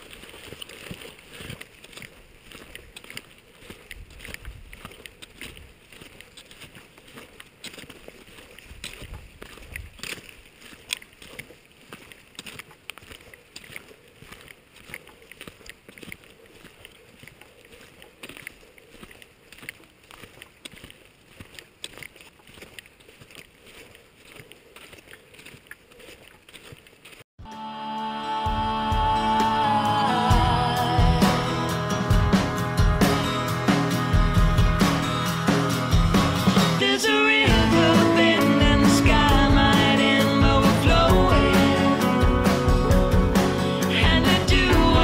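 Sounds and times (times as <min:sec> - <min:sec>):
creek babbling over rocks: 0:00.0 - 0:27.2.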